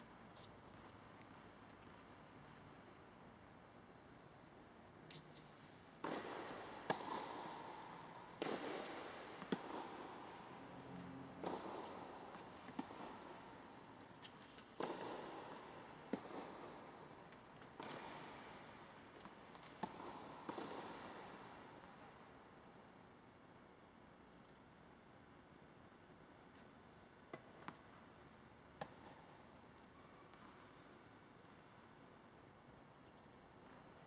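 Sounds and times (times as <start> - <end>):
tennis ball struck and bouncing: 6.0 - 10.6, 11.4 - 21.4.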